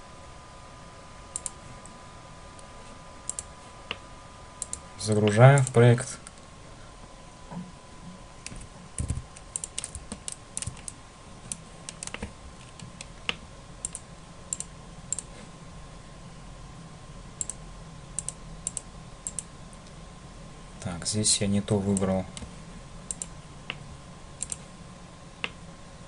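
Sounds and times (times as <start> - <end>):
faint steady hum: 0.0 - 26.0
keyboard and mouse clicking: 1.3 - 1.6, 3.3 - 4.0, 4.6 - 5.8, 8.4 - 15.3, 17.4 - 17.6, 18.2 - 19.5, 23.1 - 23.8, 24.4 - 24.6.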